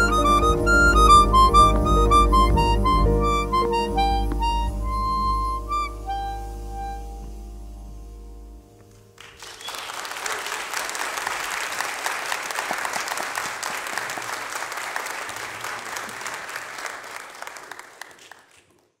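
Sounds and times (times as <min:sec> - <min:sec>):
audience applauding: 0:08.9 - 0:19.0.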